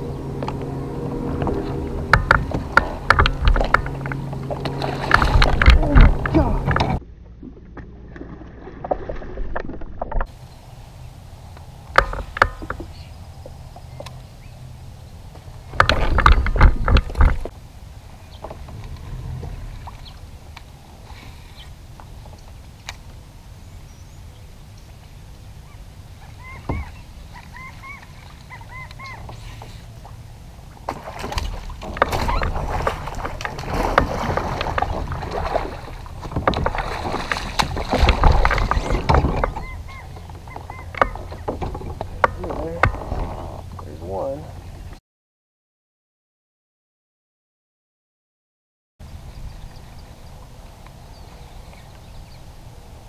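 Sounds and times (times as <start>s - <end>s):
water splashing around a kayak: 1.2s - 14.0s, 14.9s - 44.6s
short bird calls: 25.6s - 30.0s.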